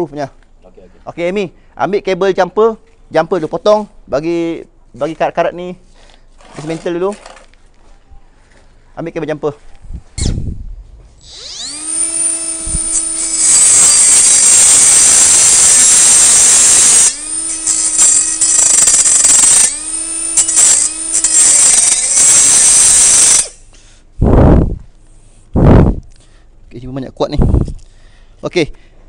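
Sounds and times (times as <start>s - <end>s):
angle grinder grinding metal: 11.2s - 23.6s.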